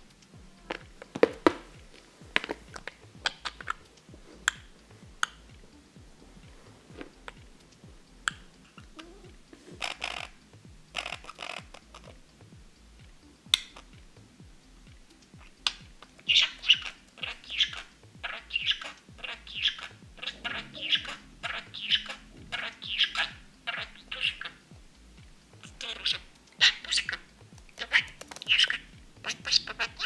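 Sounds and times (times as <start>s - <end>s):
bird tapping on laminate floor: 0.7s - 3.9s, 27.1s - 28.8s.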